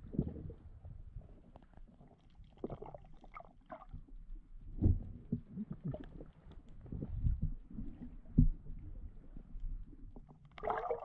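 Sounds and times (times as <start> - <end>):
muffled underwater thumps: 8.2 - 8.8.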